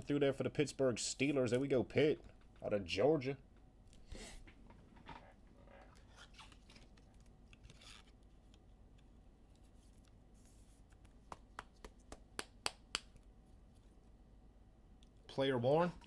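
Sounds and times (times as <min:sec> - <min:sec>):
faint rustling and scratching: 0:04.0 - 0:12.1.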